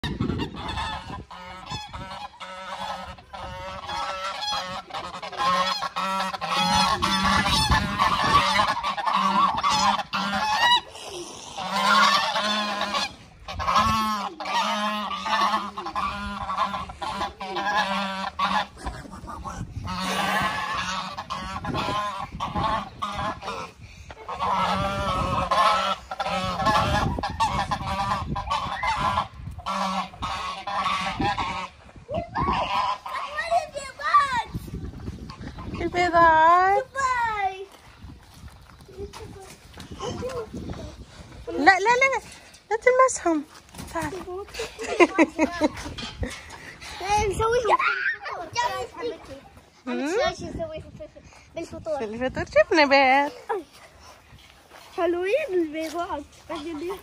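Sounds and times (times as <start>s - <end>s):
geese honking: 0.0s - 34.5s.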